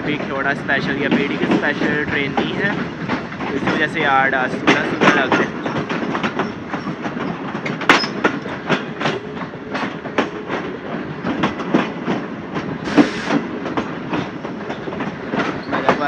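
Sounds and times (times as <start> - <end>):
train wheels clacking over rail joints: 0.0 - 16.0
brief hiss: 12.9 - 13.4.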